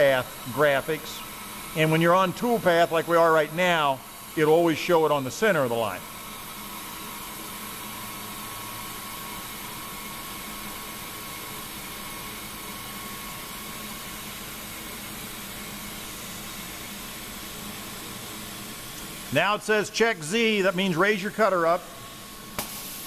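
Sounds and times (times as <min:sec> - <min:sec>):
milling machine cutting metal: 0:00.0 - 0:23.0.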